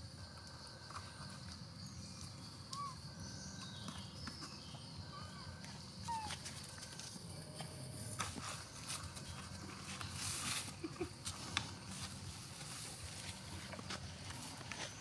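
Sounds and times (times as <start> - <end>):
faint chirps: 0.4 - 7.7
scuffs and rustles on leaves: 8.0 - 15.0.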